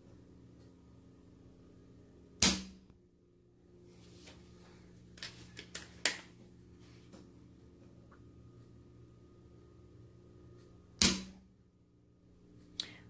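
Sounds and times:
air rifle shot: 2.4 - 2.8, 11.0 - 11.4.

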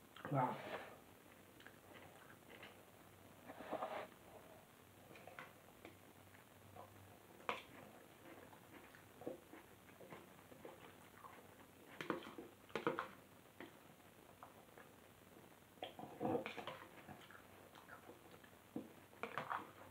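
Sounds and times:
person chewing: 1.6 - 2.8.

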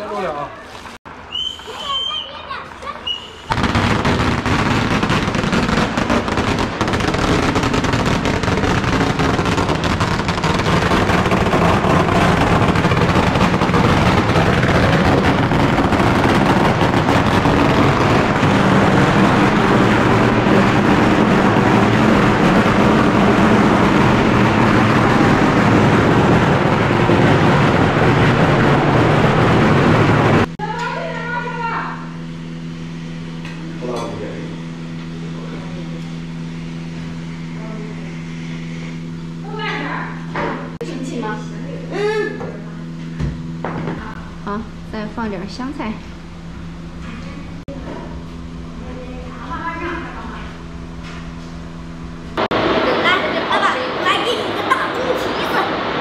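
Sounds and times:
firecrackers crackling: 0.0 - 32.2, 48.4 - 56.0.

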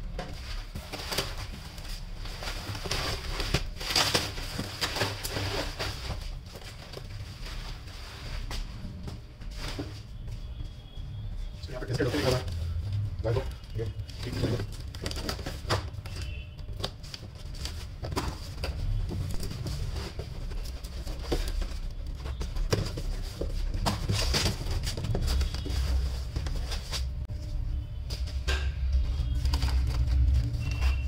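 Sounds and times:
cardboard flaps scraping: 0.2 - 8.9, 11.8 - 27.2.

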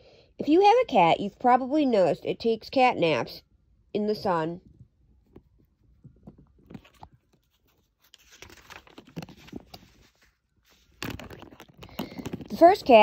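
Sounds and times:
paper rustling: 5.2 - 13.0.

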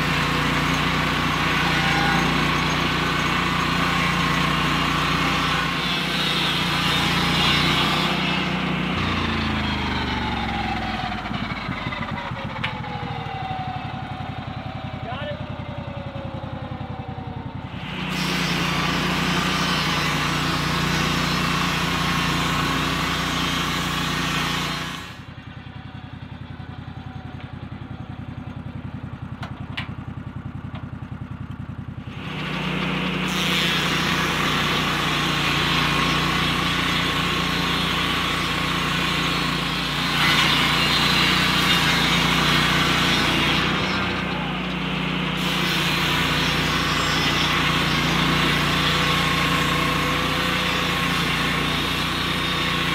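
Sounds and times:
circular blade cutting log: 0.0 - 9.8, 17.8 - 25.2, 32.2 - 52.9
sawmill engine running: 0.0 - 52.9.

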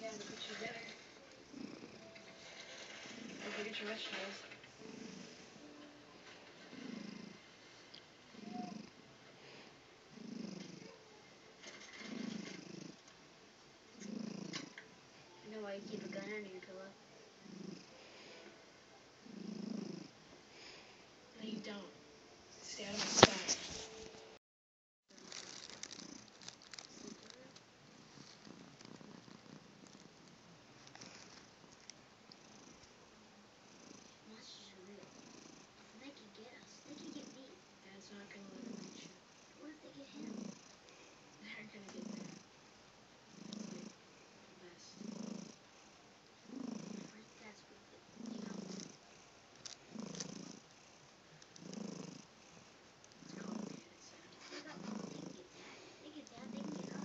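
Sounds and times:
cat snoring: 0.0 - 13.1, 13.9 - 18.6, 19.2 - 21.9, 22.6 - 23.6, 25.1 - 32.9, 33.6 - 42.7, 43.3 - 57.0
cat breathing raspily: 53.5 - 57.0.

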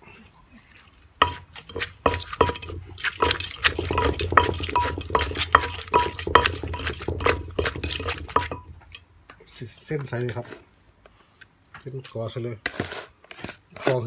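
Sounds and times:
wooden pestle pounding in mortar: 1.2 - 9.0.

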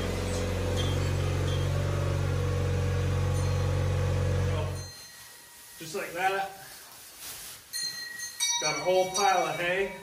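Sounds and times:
vehicle engine humming: 0.0 - 4.8.

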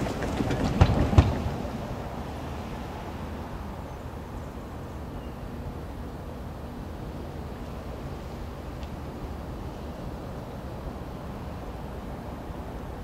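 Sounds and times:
sharp clanks and knocks: 0.0 - 1.6.

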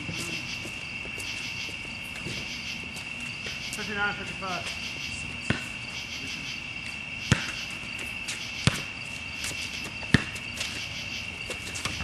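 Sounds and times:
night insects chorus: 0.0 - 12.0
basketball bouncing: 5.4 - 5.8, 7.3 - 10.8.

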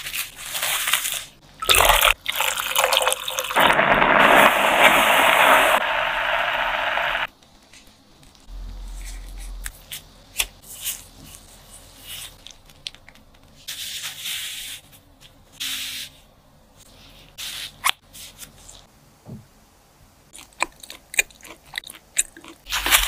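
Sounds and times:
plastic gloves rustling: 0.0 - 1.4
pot bubbling loudly: 1.6 - 7.3.

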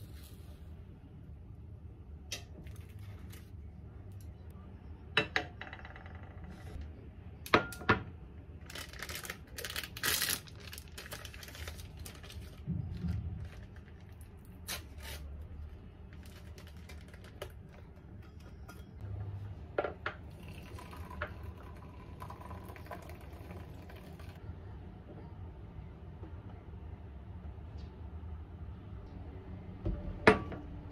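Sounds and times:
hot water pouring into mug: 20.2 - 24.4.

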